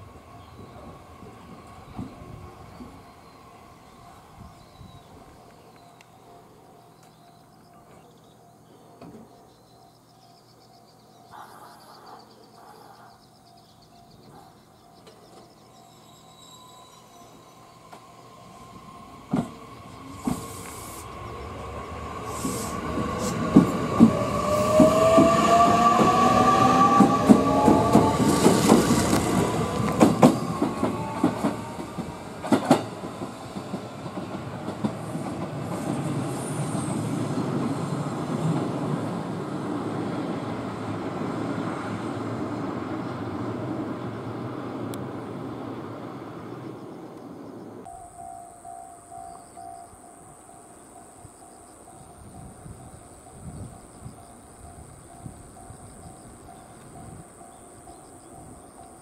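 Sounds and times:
electric train humming: 0.0 - 8.6, 15.0 - 59.0
train wheels clacking over rail joints: 22.4 - 36.1.

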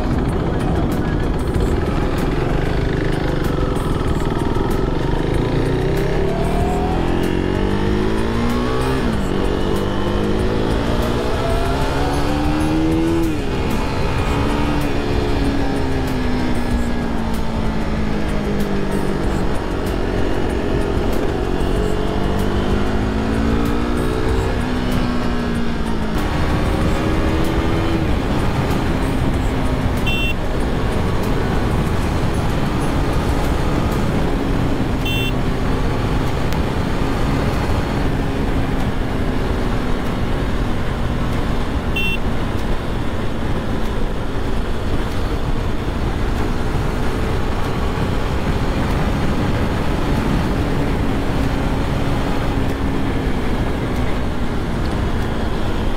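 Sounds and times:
motorcycle engine revving: 0.0 - 55.9
short high beeps: 30.0 - 30.4, 35.0 - 35.4, 42.0 - 42.2.

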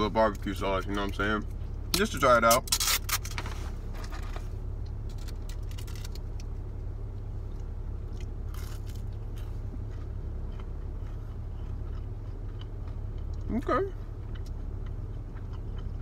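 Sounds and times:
idling car low hum: 0.0 - 16.0
crunchy bites and chewing: 4.8 - 6.6, 7.5 - 16.0.

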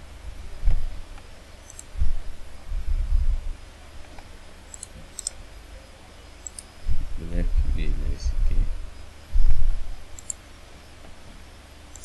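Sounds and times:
computer mouse clicking: 1.7 - 1.9, 4.7 - 5.4, 6.4 - 6.7, 10.2 - 10.4
dull low thumps: 2.0 - 3.6, 6.9 - 10.0.

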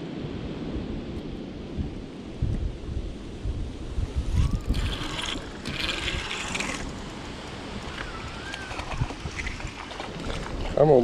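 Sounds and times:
wind rumble on microphone: 0.0 - 11.0
spinning reel cranking: 4.4 - 8.7.

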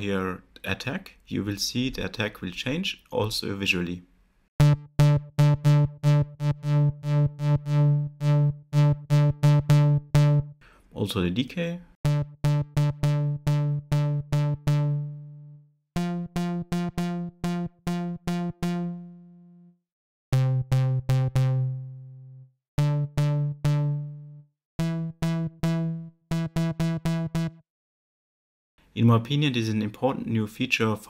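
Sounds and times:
low plucky synthesizer notes: 4.6 - 10.6, 12.0 - 27.6.

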